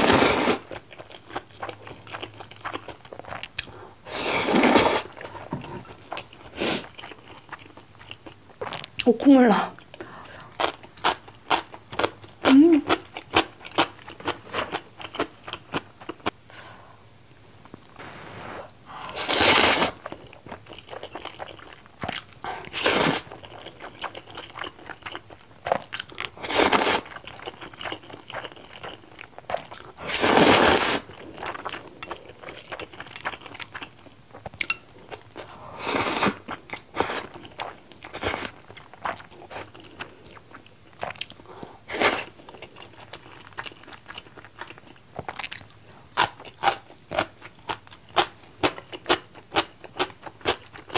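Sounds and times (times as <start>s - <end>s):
slurping noodles: 0.0s - 0.6s, 4.1s - 5.2s, 18.0s - 20.0s, 26.4s - 27.0s, 30.0s - 31.1s.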